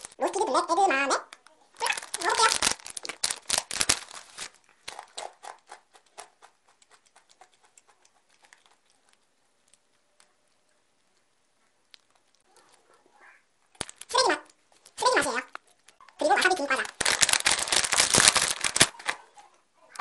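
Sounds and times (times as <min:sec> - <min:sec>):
plastic snack bag crinkling: 0:00.0 - 0:10.3, 0:13.7 - 0:19.3
crunchy beans being chewed: 0:01.8 - 0:12.9.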